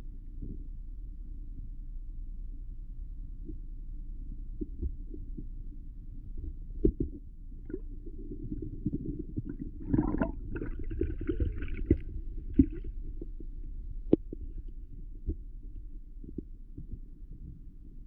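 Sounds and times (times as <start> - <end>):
underwater low rumble: 0.0 - 18.0
fizzing gurgle: 7.6 - 12.9.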